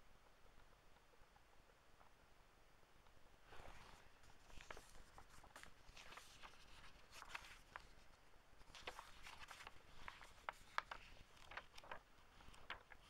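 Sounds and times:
book pages turning: 3.5s - 13.0s.

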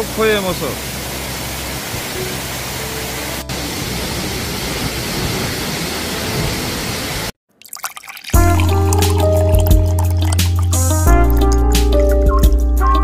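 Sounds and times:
waterfall rushing: 0.0s - 7.3s.

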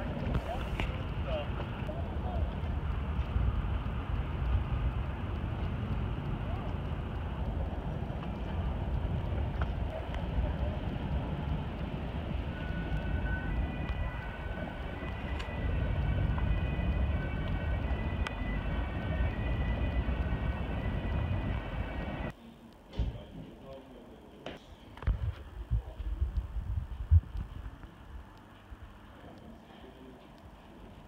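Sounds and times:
boat engine rumble: 0.0s - 22.3s
wind on microphone: 25.0s - 27.8s.

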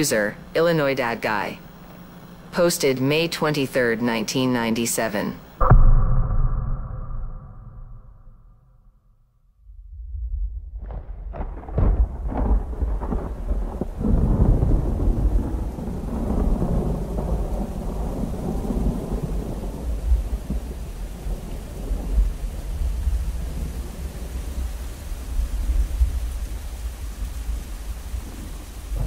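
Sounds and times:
low rumbling thunder: 9.7s - 29.0s
crackling thunder cracks: 9.9s - 24.8s
steady hiss: 12.8s - 29.0s.

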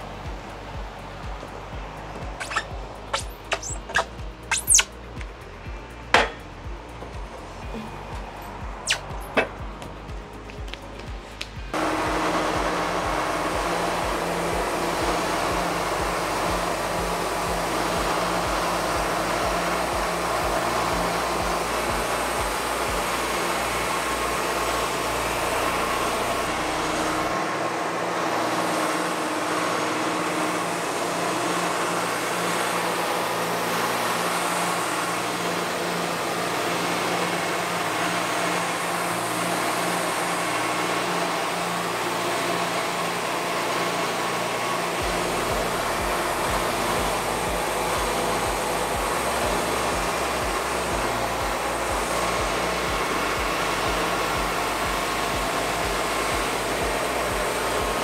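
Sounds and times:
sawmill engine running: 0.0s - 58.0s
band blade sawing log: 2.4s - 5.0s.

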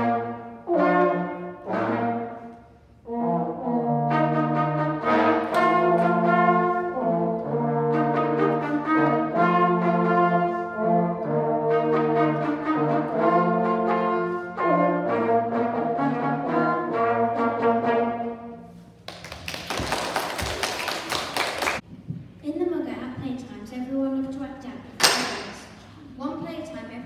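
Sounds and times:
brass quartet playing chords: 0.0s - 18.9s
applause: 19.0s - 21.8s.

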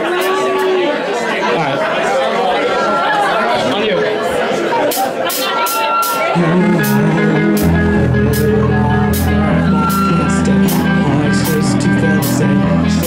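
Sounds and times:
drums: 4.8s - 13.0s
electric guitar: 6.3s - 13.0s
bass guitar: 6.4s - 13.0s.

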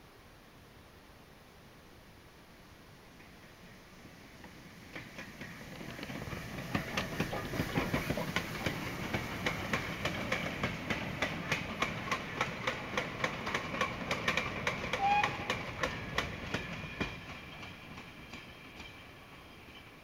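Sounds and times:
steam locomotive passing: 2.6s - 20.0s
wagon wheels clattering over rail joints: 5.0s - 19.0s.

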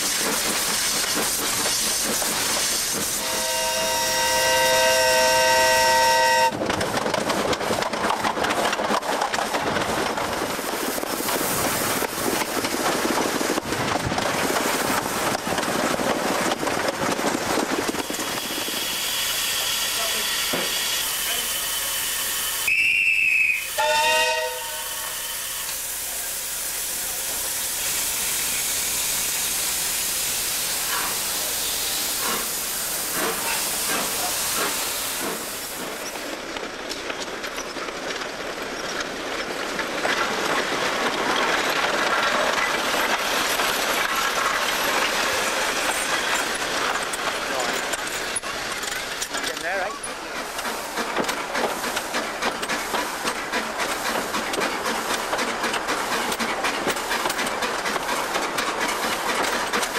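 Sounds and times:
steam train hissing: 0.0s - 6.6s, 9.4s - 36.4s, 38.4s - 59.9s
steam locomotive whistle: 3.1s - 6.6s, 18.0s - 25.7s.

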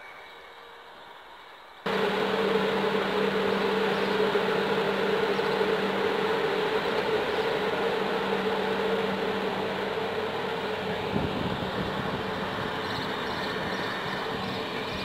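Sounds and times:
train coaches rolling past: 0.1s - 15.0s
steady hum: 1.8s - 15.0s.

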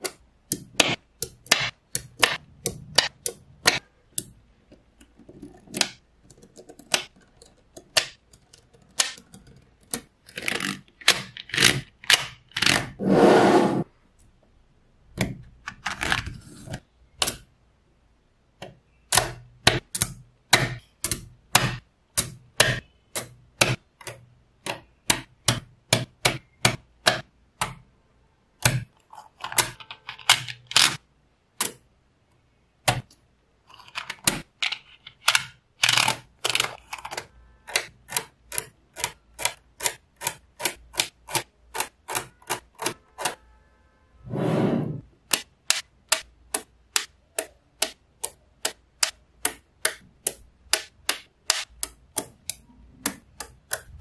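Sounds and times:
magnetic balls clicking together: 45.3s - 54.0s.

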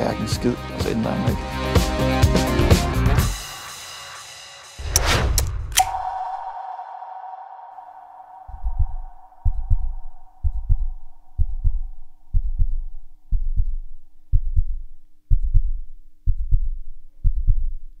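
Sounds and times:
higher tone: 5.7s - 12.3s
steady low hum: 5.8s - 18.0s
low thudding double beat: 6.0s - 17.9s.

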